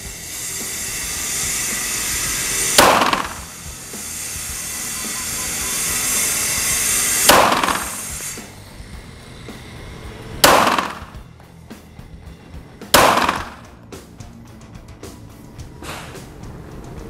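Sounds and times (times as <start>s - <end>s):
steady hiss: 0.0s - 17.0s
pistol shots: 2.8s - 3.4s, 7.3s - 8.0s, 10.4s - 11.1s, 12.9s - 13.6s.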